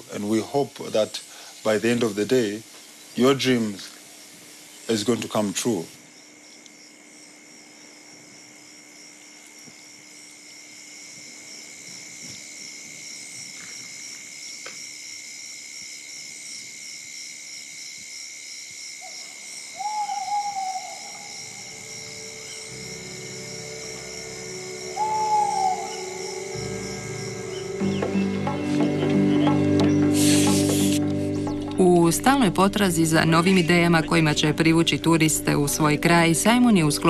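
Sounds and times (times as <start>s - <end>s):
night insects chorus: 0.0s - 37.0s
owl hooting: 19.0s - 31.0s.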